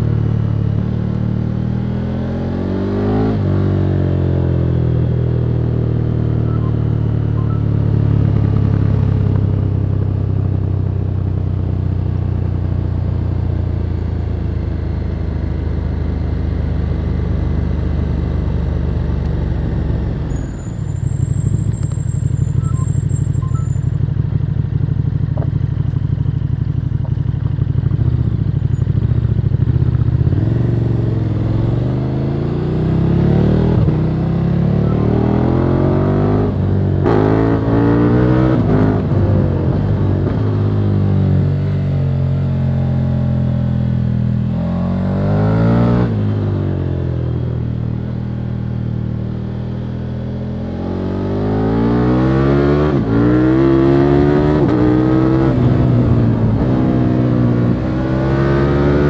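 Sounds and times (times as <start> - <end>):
motorcycle engine revving: 18.7 - 48.3, 49.6 - 59.0.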